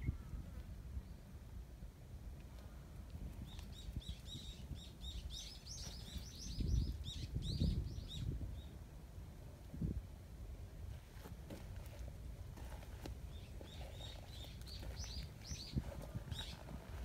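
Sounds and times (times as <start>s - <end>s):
songbird twittering: 3.4s - 8.8s, 13.3s - 16.7s.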